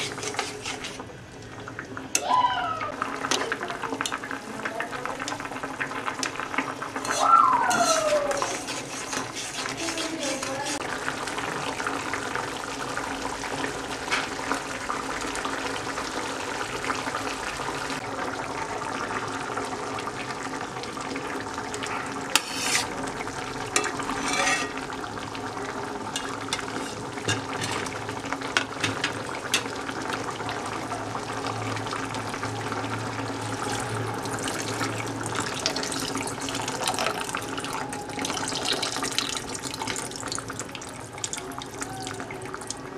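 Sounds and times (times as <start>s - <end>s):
spoon stirring: 0.0s - 1.0s, 7.0s - 10.8s, 22.3s - 22.9s, 23.8s - 24.8s
curry bubbling and sizzling: 0.0s - 42.9s
liquid pouring: 29.5s - 42.9s.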